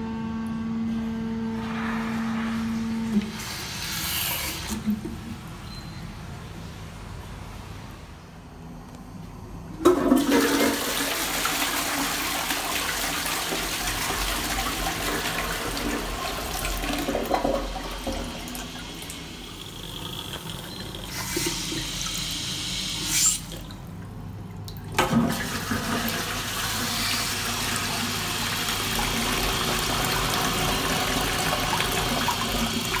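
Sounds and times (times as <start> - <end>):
toilet flushing: 1.6 - 5.5, 9.8 - 24.1, 24.7 - 33.0
cistern refilling hiss: 1.7 - 4.8, 18.4 - 23.6.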